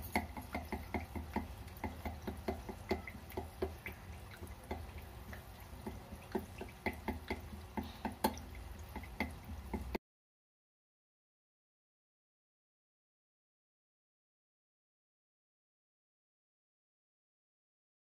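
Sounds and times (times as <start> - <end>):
chips deep-frying in oil: 0.0 - 10.0.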